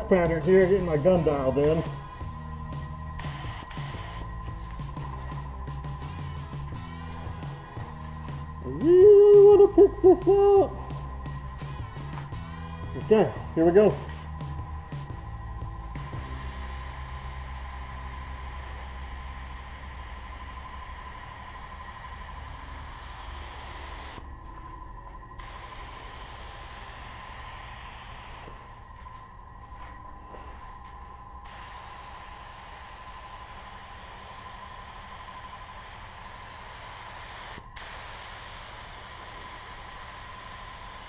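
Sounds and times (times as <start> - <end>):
paint spray gun hissing: 2.8 - 11.0, 15.9 - 24.2, 25.4 - 28.6, 31.4 - 41.0.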